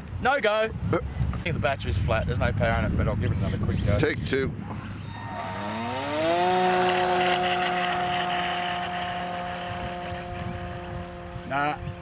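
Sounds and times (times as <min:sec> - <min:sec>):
model plane electric motor whine: 0:05.1 - 0:12.0.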